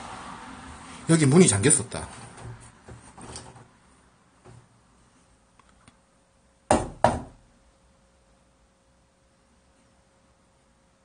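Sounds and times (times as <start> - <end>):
knocks on wooden door: 6.7 - 7.4.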